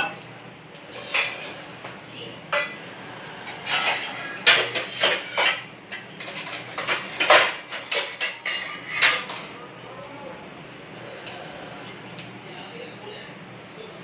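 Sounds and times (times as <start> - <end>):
metal utensils clinking: 0.0 - 1.8, 2.5 - 9.6, 10.6 - 12.7.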